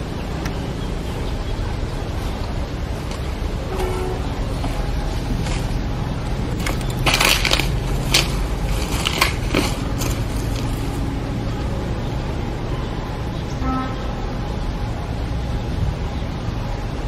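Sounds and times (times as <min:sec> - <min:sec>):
low outdoor rumble: 0:00.0 - 0:17.0
sharp crunching crackles: 0:02.8 - 0:11.7.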